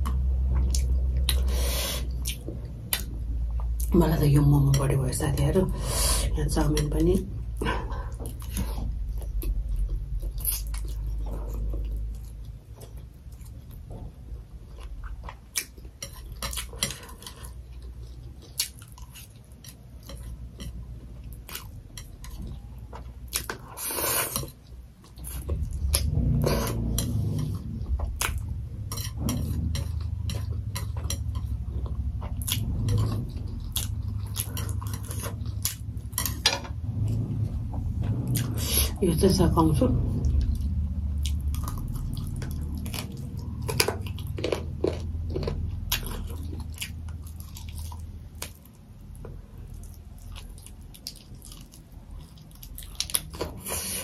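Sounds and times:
chewing and mouth sounds: 7.6 - 36.4, 40.3 - 54.0.

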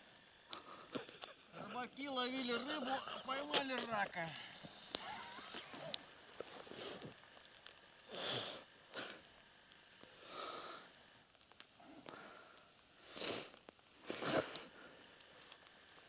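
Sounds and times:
person breathing and sniffing: 8.1 - 9.3, 11.8 - 15.1.

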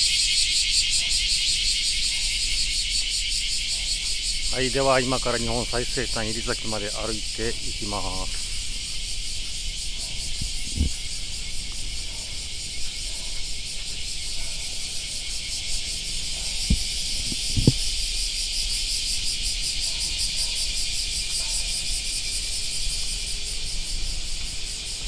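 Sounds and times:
insects buzzing: 0.0 - 25.0
low thumps: 10.3 - 11.1, 16.6 - 17.8.

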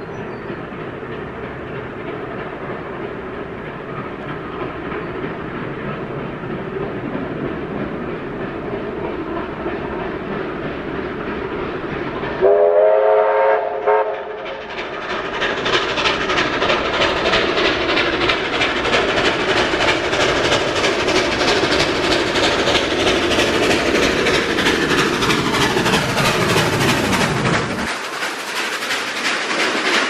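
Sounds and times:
low rumble of locomotive: 0.0 - 30.0
steam exhaust chuffs: 0.0 - 30.0
steam whistle chord: 12.4 - 14.4.

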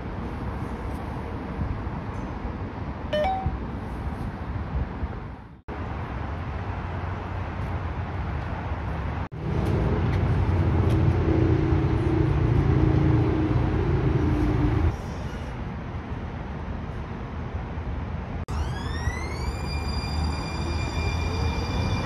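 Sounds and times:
road traffic rumble: 0.0 - 22.0
low hum: 9.4 - 15.0.

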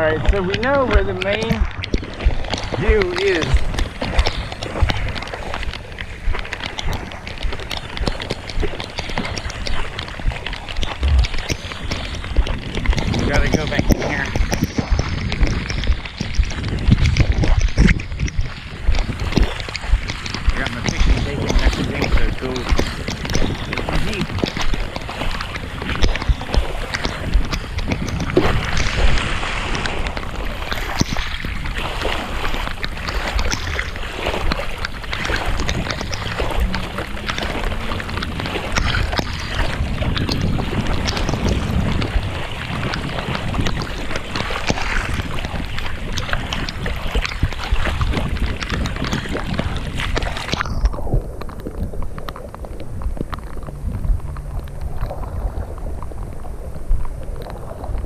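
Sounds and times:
water splashing: 0.0 - 58.0
wind buffeting microphone: 0.0 - 58.0
heavy rain: 34.8 - 45.4.

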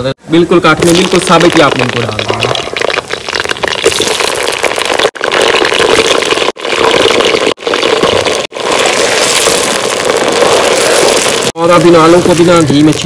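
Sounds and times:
potatoes sizzling in hot fat: 0.8 - 13.0.

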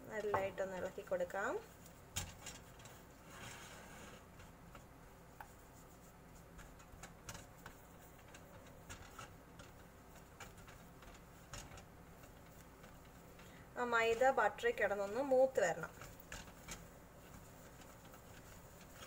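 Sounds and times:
spatula scraping saucepan: 2.2 - 4.5.

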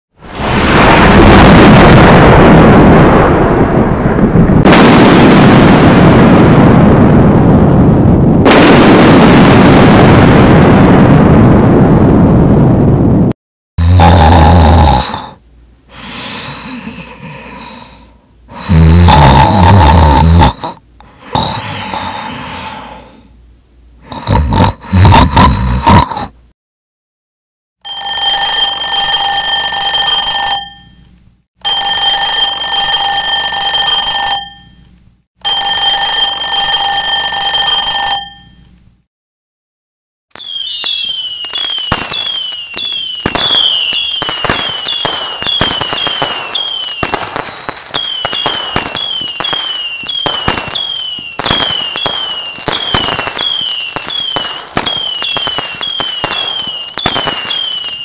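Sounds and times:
fireworks crackling and popping: 0.2 - 13.3, 40.3 - 58.0
person snoring: 13.8 - 23.2, 24.0 - 26.3
alarm clock bell ringing: 27.9 - 31.0, 31.7 - 34.7, 35.5 - 38.6
falling whistles: 40.4 - 58.0.

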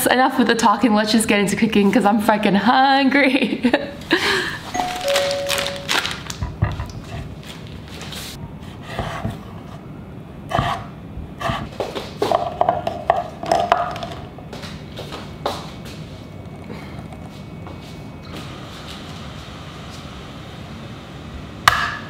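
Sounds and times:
plastic wrapper crinkling: 4.8 - 6.6.

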